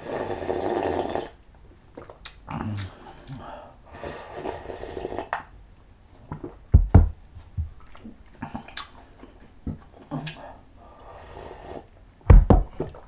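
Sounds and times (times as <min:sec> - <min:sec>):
person slurping: 0:00.0 - 0:01.4, 0:02.0 - 0:05.4, 0:10.1 - 0:11.9
heavy knocks: 0:06.7 - 0:07.8, 0:12.3 - 0:12.7.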